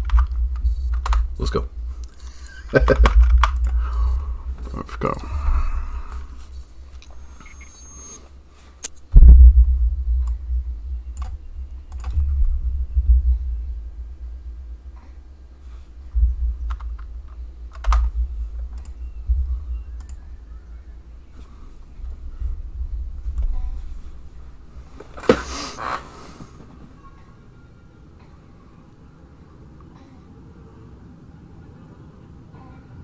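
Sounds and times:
low rumble: 0:00.0 - 0:07.9, 0:09.0 - 0:25.0
keyboard and mouse clicks: 0:00.0 - 0:08.2, 0:11.2 - 0:12.4, 0:16.6 - 0:20.3.

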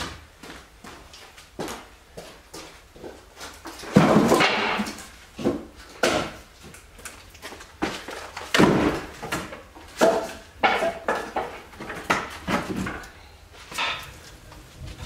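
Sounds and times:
firewood pieces knocking together: 0:03.8 - 0:06.4, 0:08.3 - 0:14.2.

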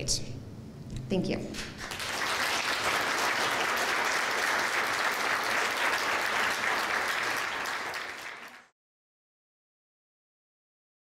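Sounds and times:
audience applauding: 0:01.8 - 0:08.7.

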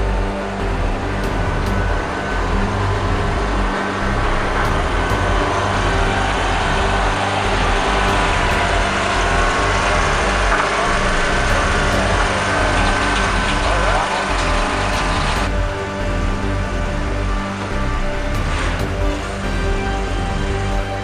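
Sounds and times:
trailer rolling past: 0:00.0 - 0:20.7
truck engine rumble: 0:00.0 - 0:21.0.

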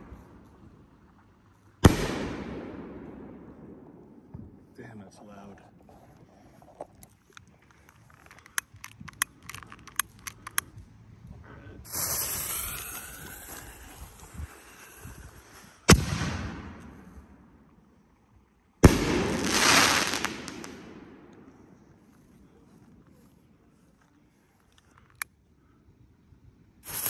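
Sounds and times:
sharp clicks: 0:07.3 - 0:10.8
fuse hissing: 0:11.9 - 0:15.1
hissing tail: 0:11.9 - 0:15.8.

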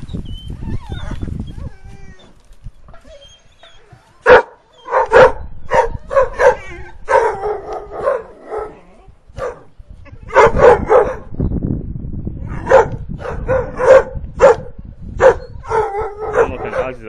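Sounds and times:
puppies barking: 0:03.2 - 0:11.3, 0:12.6 - 0:17.0.

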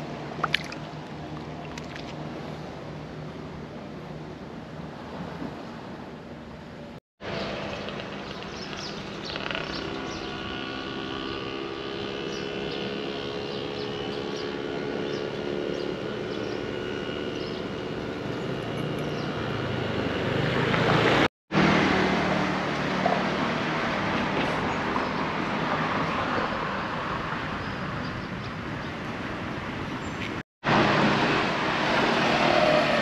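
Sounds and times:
passing vehicle engine drone: 0:07.2 - 0:27.4, 0:30.6 - 0:33.0.

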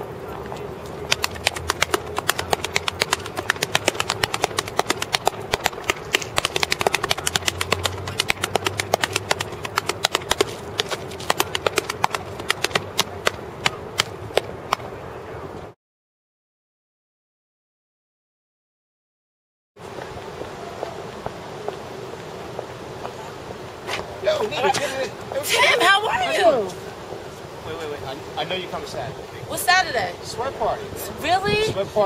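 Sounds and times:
steady outdoor hum: 0:00.0 - 0:15.8, 0:19.8 - 0:32.0
body slaps: 0:01.1 - 0:14.8
hand claps: 0:01.1 - 0:14.9.

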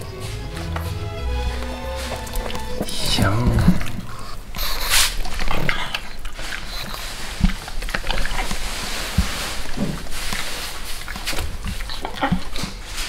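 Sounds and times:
dogs snorting and snuffling: 0:03.3 - 0:13.0.

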